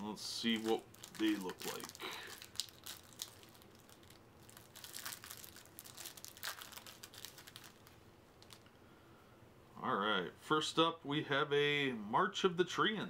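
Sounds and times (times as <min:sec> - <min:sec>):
foil wrapper crinkling and tearing: 0:00.0 - 0:08.7.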